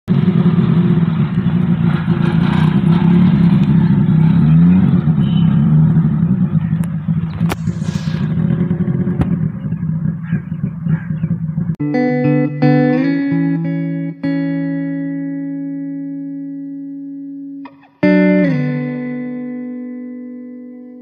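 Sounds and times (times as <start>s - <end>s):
pickup truck engine revving: 0.1s - 11.8s
sharp clicks: 6.8s - 8.3s.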